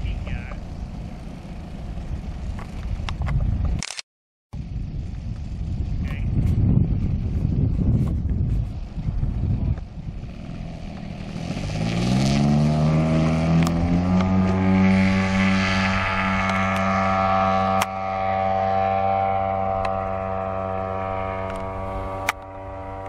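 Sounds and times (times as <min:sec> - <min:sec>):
model plane engine at full throttle: 0:00.0 - 0:03.5, 0:04.6 - 0:23.0.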